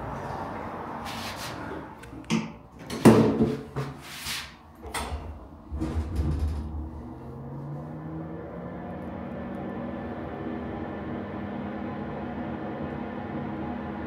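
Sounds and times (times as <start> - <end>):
lift doors clunking and rattling: 4.8 - 7.2
low hum: 4.8 - 14.0.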